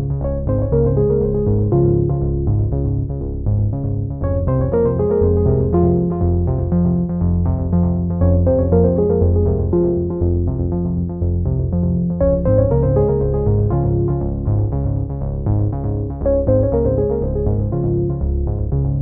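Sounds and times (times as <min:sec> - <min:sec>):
electronic synthesizer music: 0:04.2 - 0:06.9, 0:08.1 - 0:11.4, 0:12.1 - 0:14.7, 0:16.2 - 0:18.7.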